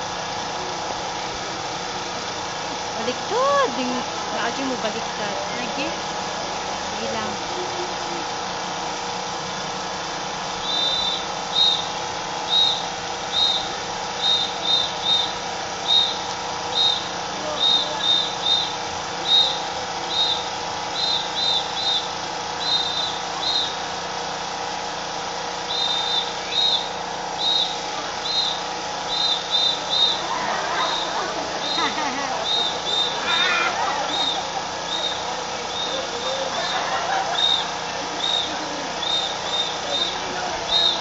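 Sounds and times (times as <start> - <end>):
steady background hum: 0.0 - 41.0
whistle blasts: 10.6 - 23.9, 25.6 - 33.5, 34.1 - 41.0.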